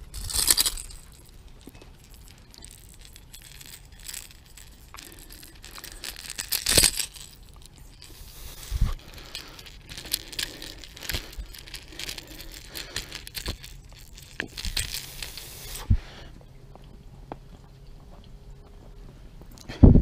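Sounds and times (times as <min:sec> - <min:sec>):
metal hooks clinking: 0:00.0 - 0:15.9.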